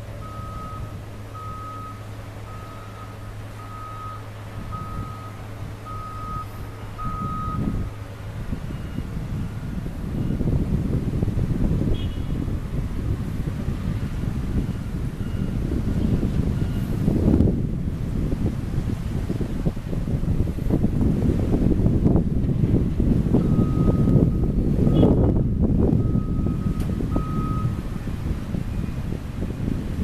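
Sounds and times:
wind buffeting microphone: 0.0 - 30.0
reversing alarm beeping: 0.2 - 7.9, 8.7 - 10.5, 14.5 - 17.0, 23.4 - 27.8.

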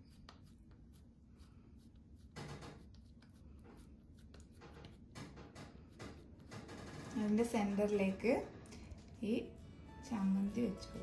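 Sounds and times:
hands squishing dough: 0.0 - 6.5.

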